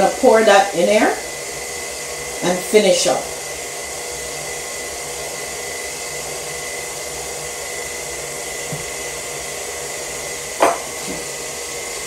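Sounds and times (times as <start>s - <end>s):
stand mixer motor whirring: 0.0s - 12.0s
small knock: 10.6s - 11.2s.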